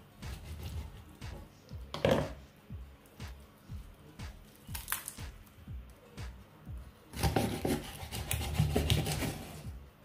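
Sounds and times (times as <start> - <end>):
background music with a beat: 0.0 - 10.0
low kick drum thumps: 0.2 - 4.4.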